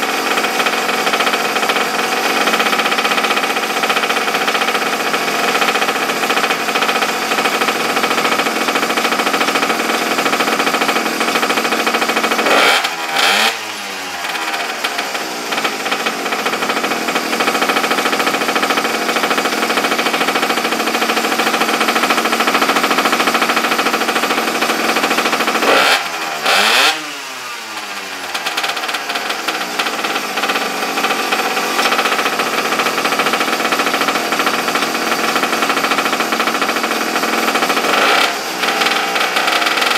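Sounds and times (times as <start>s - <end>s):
small engine revving: 8.6s - 20.5s, 21.5s - 39.9s.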